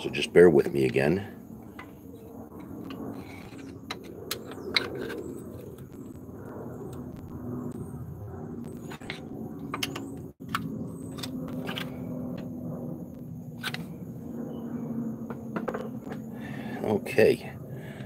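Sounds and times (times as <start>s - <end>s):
steady low hum: 0.0s - 18.0s
screwdriver scraping metal: 2.6s - 5.8s.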